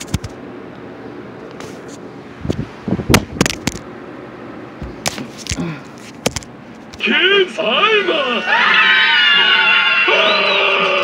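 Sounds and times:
device handling knocks and clicks: 0:03.2 - 0:03.8, 0:06.2 - 0:06.5.

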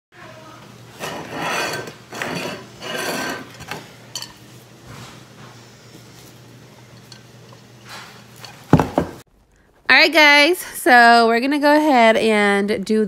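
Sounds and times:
ceramic plate scraping on stone: 0:00.9 - 0:03.8.

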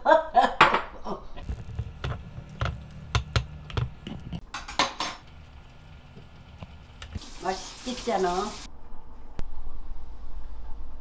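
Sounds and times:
dishes and utensils clinking: 0:02.6 - 0:05.5.

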